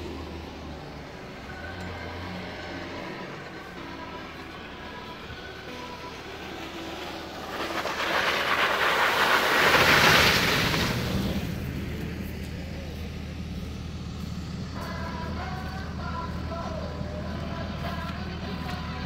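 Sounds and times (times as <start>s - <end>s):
tyres rushing through mud: 0.0s - 14.3s
off-road vehicle engine rumble: 0.0s - 19.0s.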